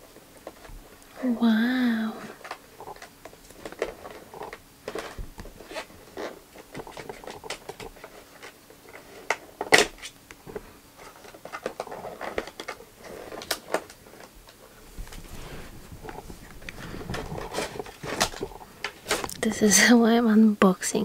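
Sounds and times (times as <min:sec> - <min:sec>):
plastic tray crackling and clicking: 0:11.0 - 0:14.6.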